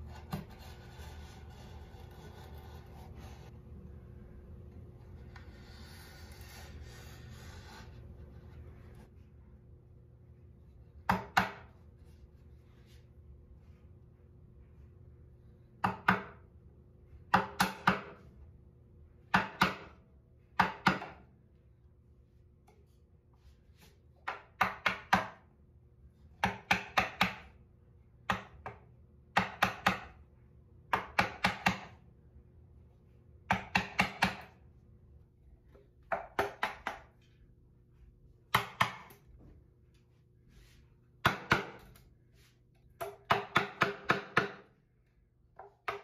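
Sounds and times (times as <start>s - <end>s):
wooden mallet striking chisel: 11.0s - 11.7s, 15.8s - 16.4s, 17.3s - 18.2s, 19.3s - 20.0s, 20.6s - 21.3s, 24.2s - 25.4s, 26.4s - 27.5s, 28.3s - 30.2s, 30.9s - 32.0s, 33.5s - 34.6s, 36.0s - 37.1s, 38.5s - 39.2s, 41.2s - 41.8s, 43.0s - 44.7s, 45.6s - 46.0s.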